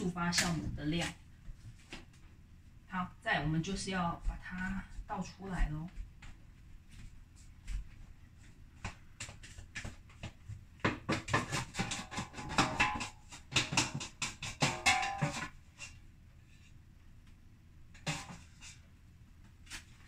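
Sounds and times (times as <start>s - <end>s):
metal bowl knocking and ringing: 12.1s - 15.5s.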